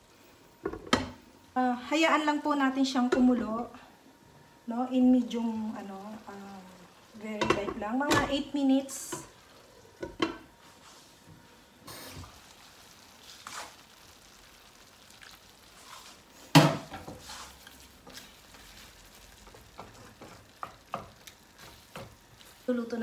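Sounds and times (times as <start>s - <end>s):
juice simmering in pan: 0.0s - 23.0s
wooden spatula knocking in pan: 7.4s - 8.4s, 10.0s - 10.5s, 16.5s - 17.3s, 19.4s - 22.2s.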